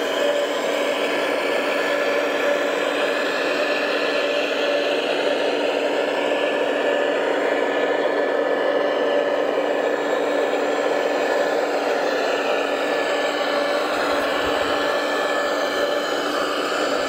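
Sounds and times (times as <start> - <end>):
steady motor whir: 0.0 - 17.0.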